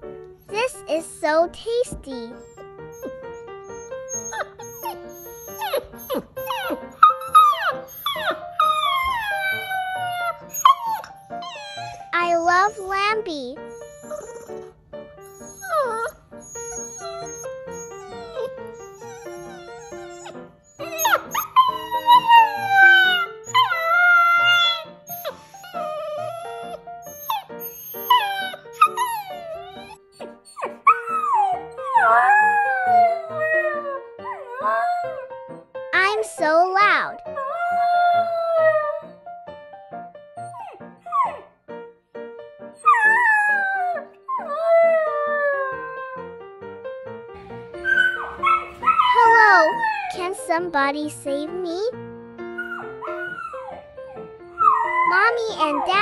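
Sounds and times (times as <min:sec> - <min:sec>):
background music: 0:00.0 - 0:56.0
puppy yelp: 0:02.3 - 0:35.3, 0:40.4 - 0:41.6, 0:42.8 - 0:46.2, 0:47.8 - 0:50.2, 0:52.6 - 0:56.0
puppy howling: 0:02.9 - 0:12.8, 0:13.6 - 0:14.7, 0:15.3 - 0:35.4, 0:37.3 - 0:39.2, 0:42.8 - 0:46.4, 0:47.8 - 0:50.2, 0:52.6 - 0:56.0.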